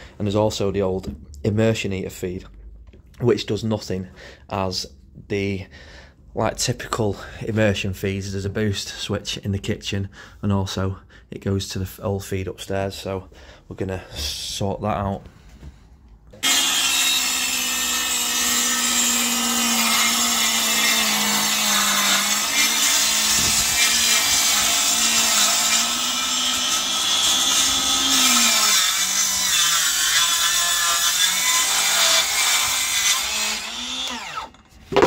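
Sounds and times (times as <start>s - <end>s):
circular saw cutting board: 16.4s - 35.0s.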